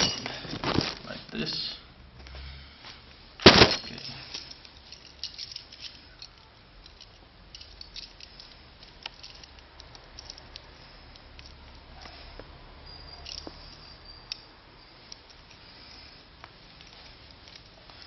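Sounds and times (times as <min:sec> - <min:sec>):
handling rustles and knocks: 0:00.0 - 0:01.3, 0:03.4 - 0:12.5.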